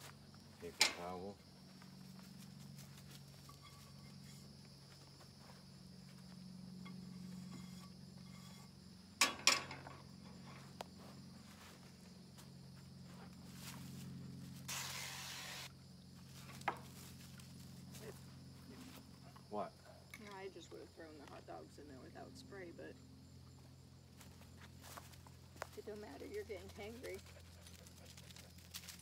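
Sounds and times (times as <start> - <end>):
steady low hum: 0.0 - 29.0
aerosol spray hissing: 14.7 - 15.7.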